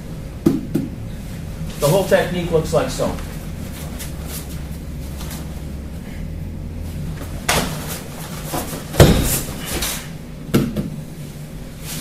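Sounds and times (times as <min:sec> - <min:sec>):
feet and clothing scuffling: 0:01.7 - 0:05.8, 0:07.1 - 0:10.1
body thudding on mat: 0:07.2 - 0:10.0.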